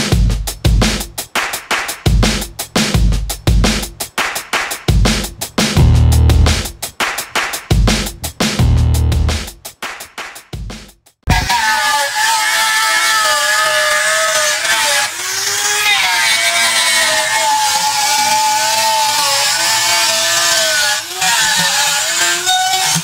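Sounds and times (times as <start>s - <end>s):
angle grinder carving wood: 5.8s - 6.6s, 11.3s - 23.0s.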